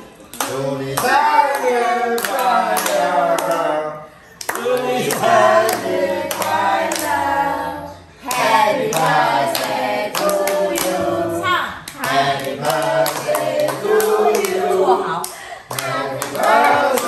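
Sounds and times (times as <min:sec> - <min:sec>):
people singing together: 0:00.0 - 0:17.0
hands clapping: 0:04.4 - 0:07.2, 0:08.3 - 0:11.0.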